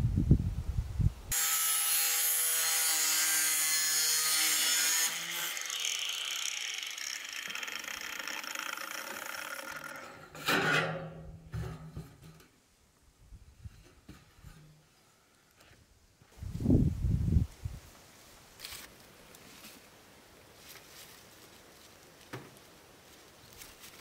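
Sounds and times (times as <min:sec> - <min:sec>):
angle grinder cutting steel: 0:01.3 - 0:10.9
steel sheet rattling: 0:07.4 - 0:12.4.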